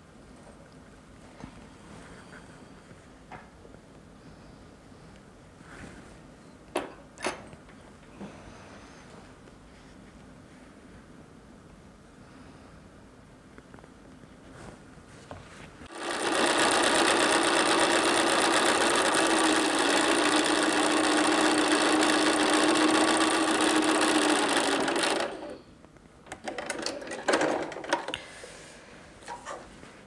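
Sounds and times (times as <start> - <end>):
sewing machine stitching: 15.9 - 25.6.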